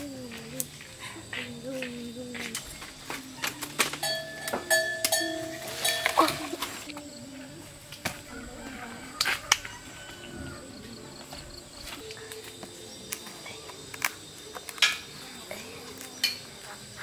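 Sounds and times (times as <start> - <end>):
palm fronds rustling: 0.0 - 10.3.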